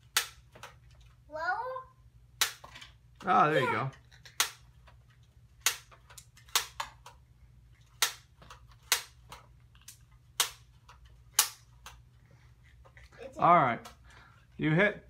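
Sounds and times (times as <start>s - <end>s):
toy launcher firing clicks: 4.2s - 4.7s, 5.6s - 7.2s, 8.0s - 10.7s.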